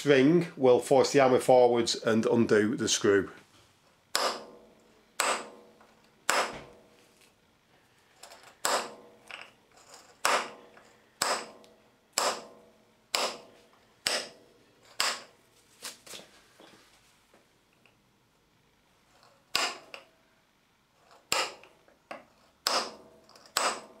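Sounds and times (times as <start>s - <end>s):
centre punch metallic snaps: 4.1s - 6.8s.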